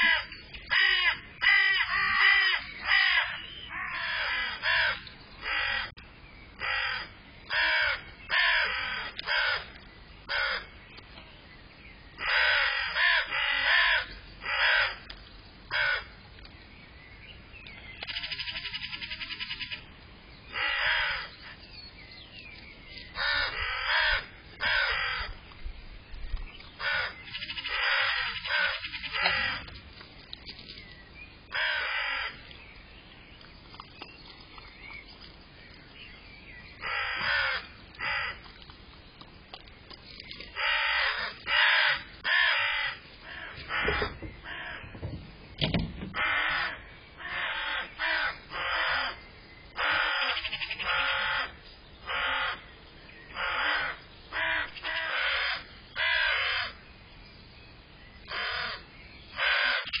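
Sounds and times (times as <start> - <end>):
crow cawing: 0.0 - 5.9, 6.6 - 10.7, 12.2 - 15.1, 15.7 - 16.1, 20.5 - 21.3, 23.2 - 25.4, 26.8 - 29.7, 31.5 - 32.4, 36.8 - 38.4, 40.6 - 44.9, 46.2 - 49.2, 49.8 - 52.6, 53.4 - 56.8, 58.2 - 58.8, 59.4 - 60.0.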